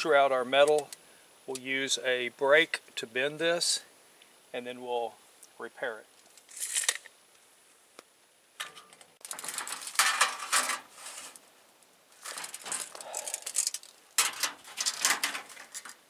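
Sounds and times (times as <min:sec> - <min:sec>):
sheet metal and tape measure rattling: 0:08.6 - 0:11.4, 0:12.2 - 0:16.0.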